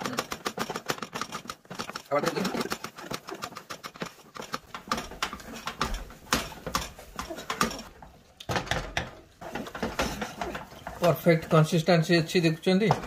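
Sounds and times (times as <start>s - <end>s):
wooden spatula scraping metal skillet: 2.1s - 13.0s.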